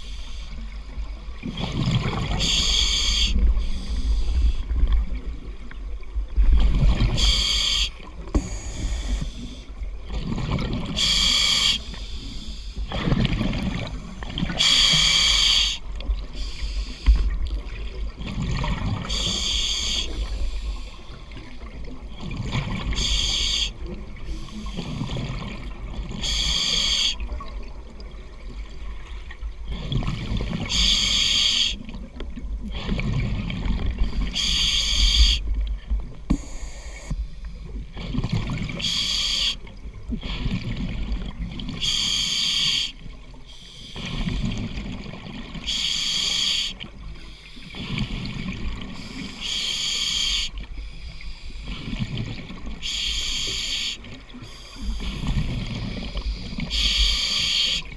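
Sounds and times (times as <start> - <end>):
low rumbling bubbles: 0.6 - 2.6, 3.3 - 7.4, 8.1 - 11.0, 12.8 - 14.6, 17.0 - 19.3, 21.3 - 23.1
regulator breathing hiss: 2.4 - 4.7, 7.2 - 9.7, 11.0 - 12.9, 14.6 - 17.3, 19.1 - 21.4, 22.9 - 25.1, 26.2 - 27.2, 30.6 - 31.8, 34.2 - 35.5, 36.3 - 37.4, 38.8 - 40.5, 41.8 - 44.4, 45.6 - 48.3, 48.9 - 51.8, 52.8 - 57.9.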